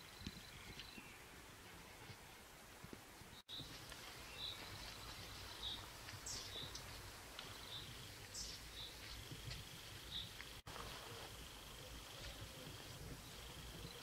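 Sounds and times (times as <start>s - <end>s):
bird chirping: 0.0s - 1.3s, 3.3s - 9.4s, 10.0s - 10.5s.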